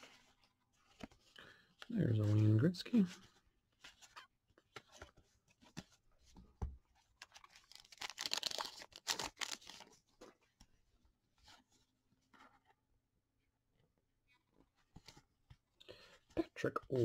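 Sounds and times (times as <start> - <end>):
cards clicking and rustling: 7.0 - 10.3
card pack wrapper crinkling: 7.2 - 10.0.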